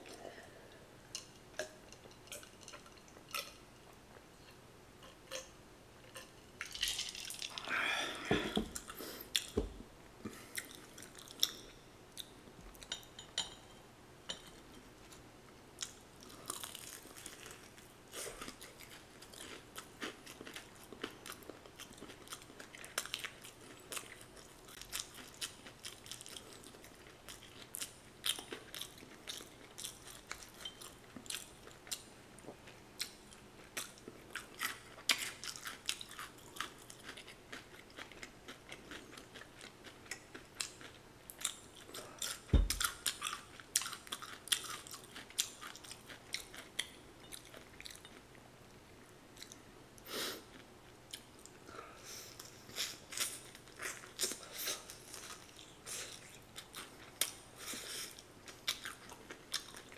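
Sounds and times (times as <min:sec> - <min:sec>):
crunchy chewing of fried chicken: 0:15.8 - 0:59.9.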